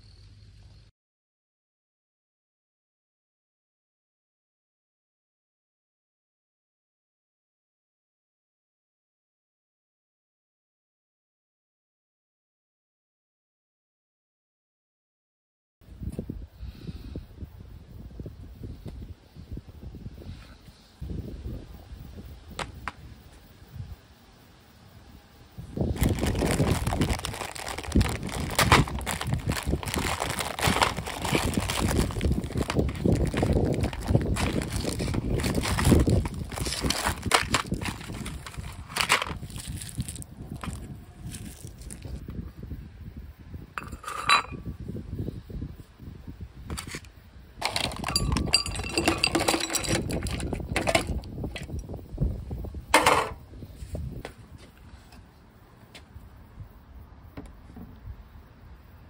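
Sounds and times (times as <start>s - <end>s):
paper cover crinkling and tearing: 26.0s - 42.2s
brittle pieces clattering onto plate: 47.6s - 51.1s.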